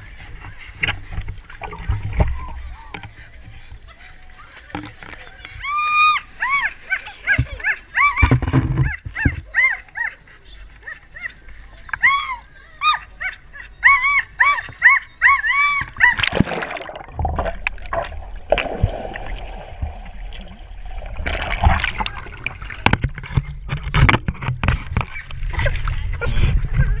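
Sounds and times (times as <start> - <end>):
dog whining: 10.8 - 16.3.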